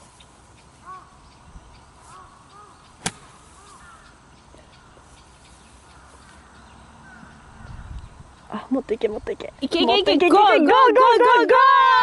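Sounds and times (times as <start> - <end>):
faint bird chirps: 0.0 - 9.4
golf club striking ball: 3.0 - 3.6.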